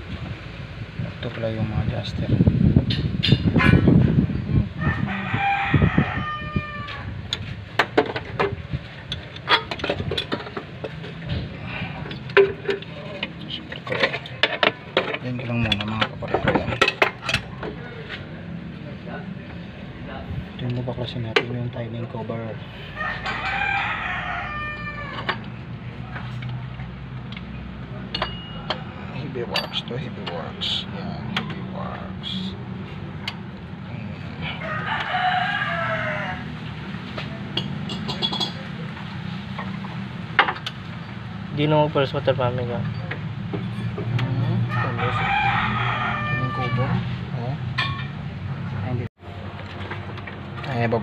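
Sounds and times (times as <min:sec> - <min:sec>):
rooster crowing: 0:04.8 - 0:07.2, 0:22.8 - 0:25.6, 0:34.4 - 0:36.8, 0:44.6 - 0:47.2.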